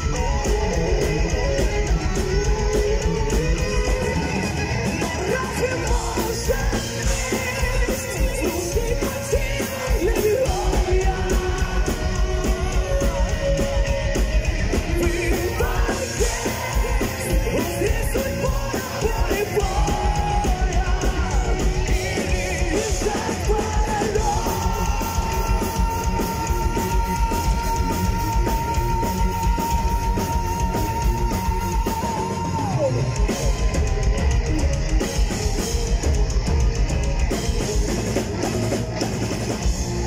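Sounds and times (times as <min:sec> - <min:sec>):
heavy metal band playing: 0:00.0 - 0:40.0.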